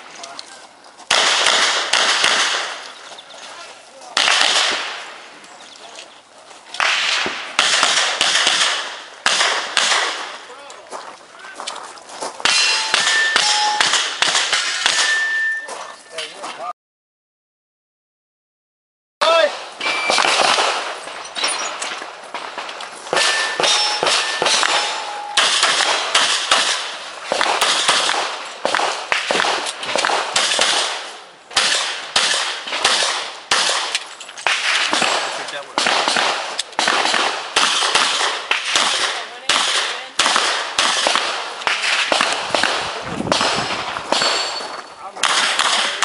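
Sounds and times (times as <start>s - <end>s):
revolver gunshots: 1.1s - 2.9s, 4.1s - 5.2s, 6.8s - 10.5s, 12.4s - 15.4s, 19.5s - 46.0s
brief ringing tones: 15.1s - 15.7s, 23.3s - 25.4s.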